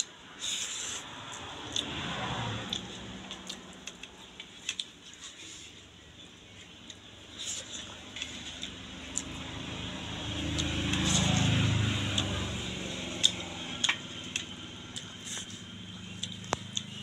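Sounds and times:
low vehicle engine hum: 0.0 - 17.0
chewing and mouth smacks: 2.7 - 5.0, 13.1 - 17.0.

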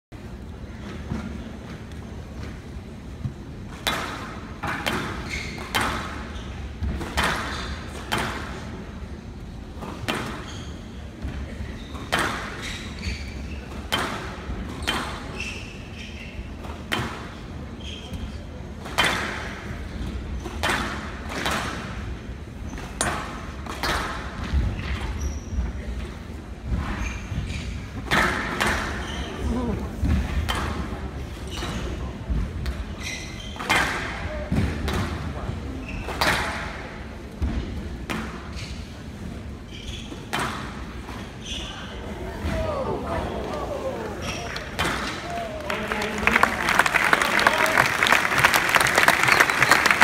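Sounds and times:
squash ball hits: 3.7 - 8.5
shoe squeaks on court floor: 5.1 - 6.7, 10.1 - 14.1, 14.7 - 16.7, 17.3 - 18.5, 24.7 - 25.8, 26.9 - 27.9, 28.7 - 29.6, 31.4 - 32.1, 32.8 - 33.8, 35.7 - 36.4, 38.4 - 39.0, 39.6 - 42.0
crowd murmuring: 42.0 - 50.0.

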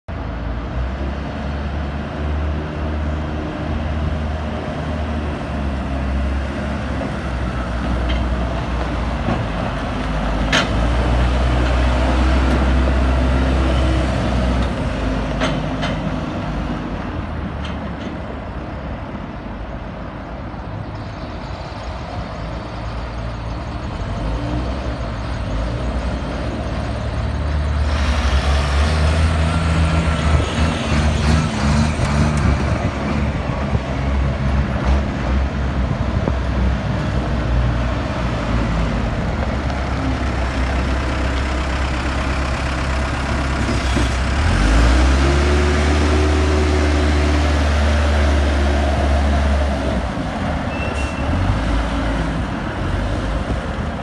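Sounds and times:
diesel engine driving by: 0.1 - 54.0
truck engine pulling in: 0.1 - 54.0.

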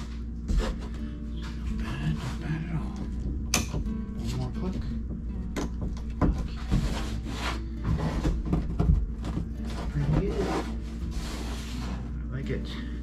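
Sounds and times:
hand rubbing along wooden edge: 6.4 - 8.5, 9.6 - 12.2.

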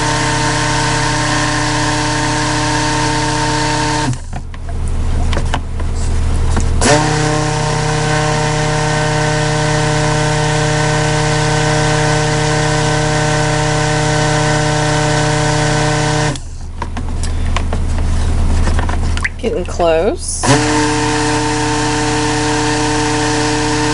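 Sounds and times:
stick blender motor whine: 0.0 - 4.5, 6.5 - 16.8, 20.4 - 23.9.

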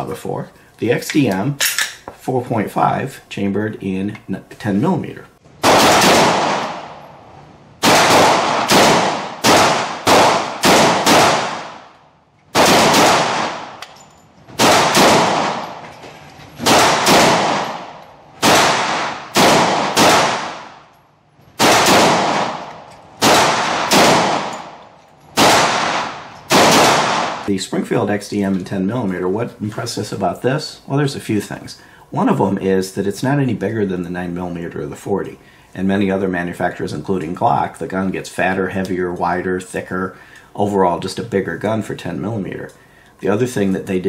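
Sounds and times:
pistol shots echoing indoors: 5.6 - 15.9, 16.6 - 27.5.

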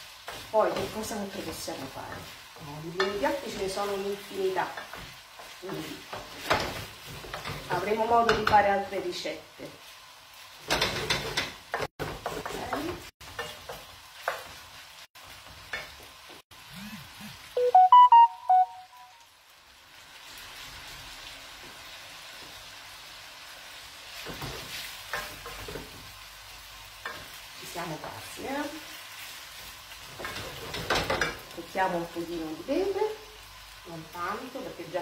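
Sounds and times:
wooden spoon stirring pasta in pan: 0.0 - 16.4, 20.3 - 32.8
low sizzle: 0.0 - 35.0
bright run of musical tones: 16.8 - 19.2.

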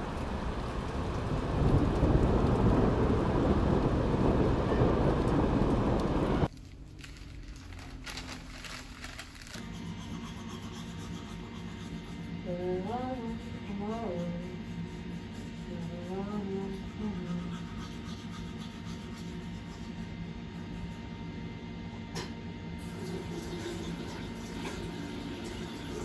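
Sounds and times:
loud rain-like rushing: 0.0 - 6.5
newspaper pages rustling: 6.5 - 9.7.

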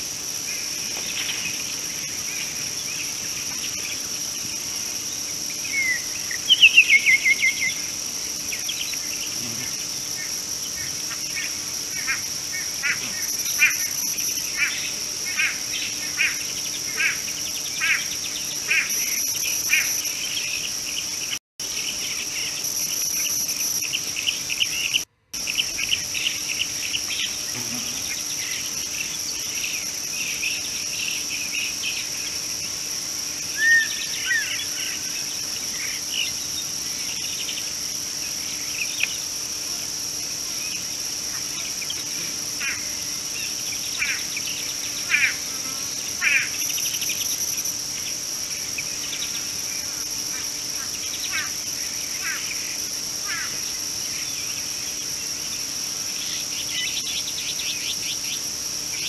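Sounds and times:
insects droning: 0.0 - 59.0
bird chirping: 5.6 - 7.9.

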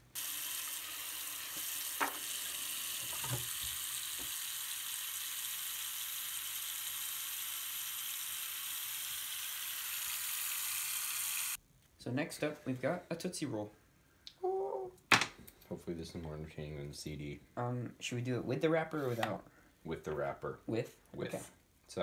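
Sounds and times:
tap water running into sink: 0.2 - 8.2.

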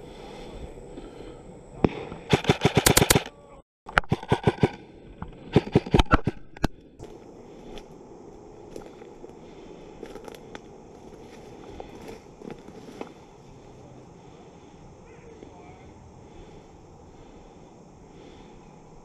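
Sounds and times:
airsoft rifle firing in bursts: 1.9 - 3.3.

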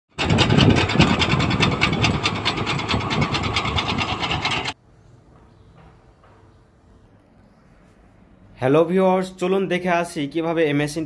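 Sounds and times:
engine noise: 0.1 - 4.8.

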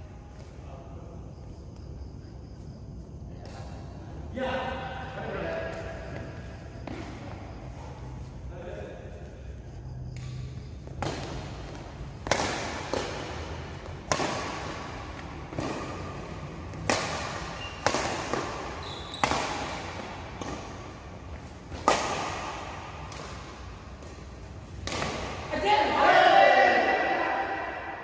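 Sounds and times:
racket hitting shuttlecock: 10.2 - 25.7.

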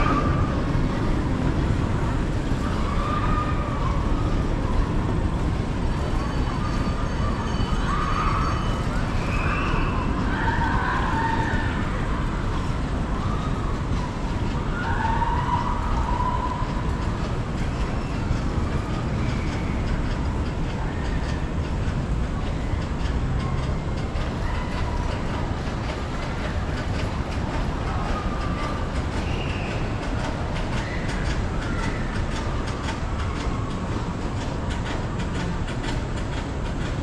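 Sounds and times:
faint squeals: 5.7 - 17.1.

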